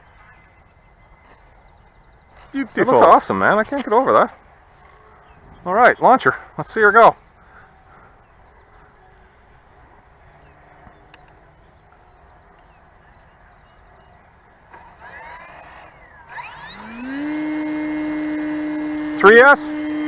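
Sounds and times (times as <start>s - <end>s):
faint outdoor background: 0.0s - 20.0s
electric motor whine: 14.7s - 20.0s.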